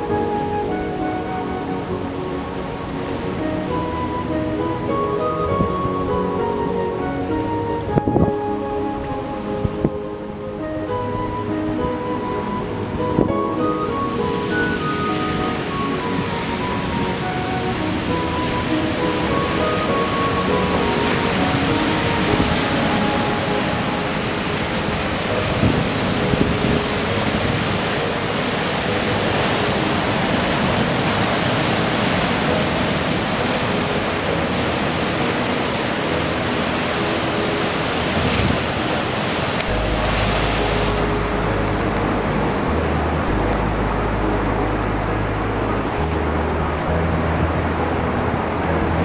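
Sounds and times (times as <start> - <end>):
surf washing over rocks: 0.0 - 49.0
deep low rumble: 39.7 - 49.0.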